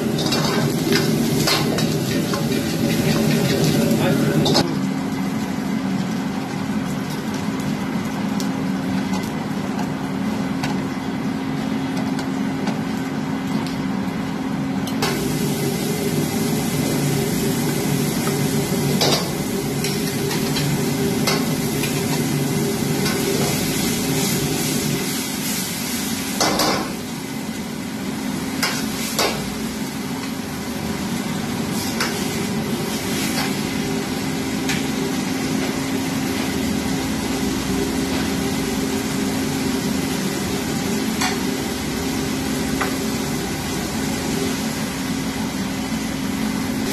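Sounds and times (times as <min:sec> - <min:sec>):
chicken sizzling in a wok: 0:00.0 - 0:11.6, 0:12.2 - 0:46.9
ladle knocking and scraping wok: 0:00.1 - 0:04.7.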